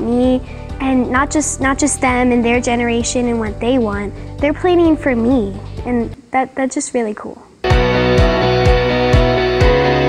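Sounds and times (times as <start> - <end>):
instrumental music with steady beat: 7.6 - 10.0.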